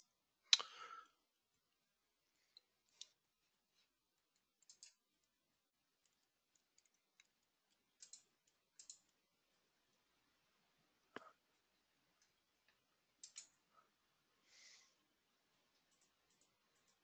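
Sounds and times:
computer keys clicking: 4.3 - 5.4, 6.0 - 9.2, 13.2 - 13.6, 15.7 - 17.0.

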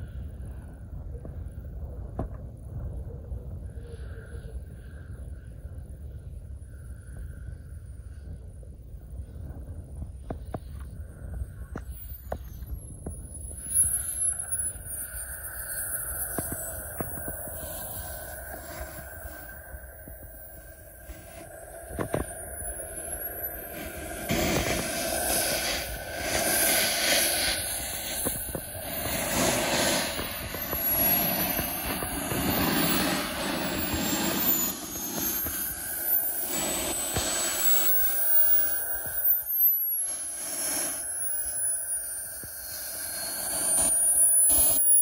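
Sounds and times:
model jet turbine whining: 10.1 - 45.0.

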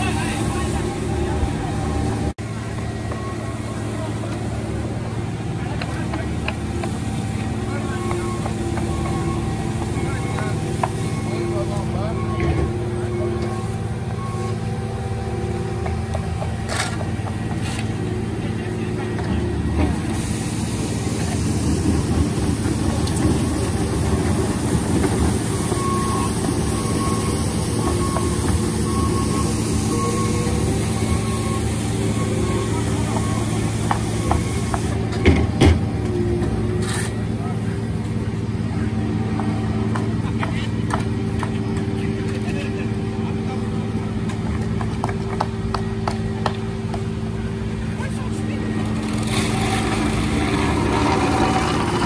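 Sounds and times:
reversing alarm beeping: 0.0 - 5.0, 7.1 - 16.5, 20.8 - 36.4
diesel engines running: 0.0 - 52.0
rakes scraping asphalt: 36.6 - 37.4, 47.9 - 52.0.

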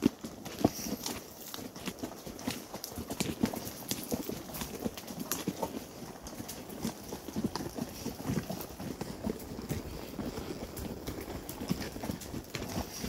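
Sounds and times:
horse hooves clip-clopping: 0.0 - 13.0.

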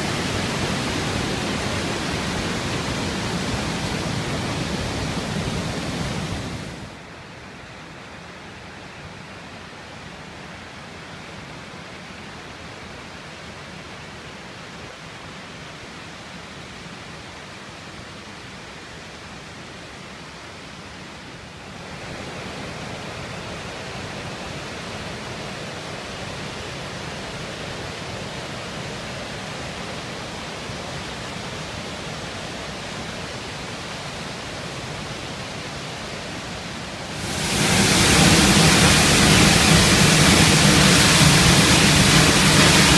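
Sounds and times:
waterfall rushing: 0.0 - 7.0, 21.8 - 42.9
river rushing over rapids: 0.0 - 42.9.

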